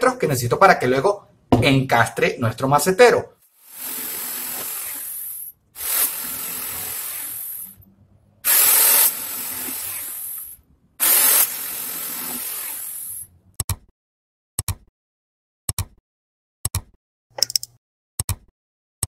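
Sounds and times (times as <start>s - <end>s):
jigsaw cutting wood: 3.6s - 7.8s, 8.4s - 13.3s
sharp double click: 16.7s - 18.4s.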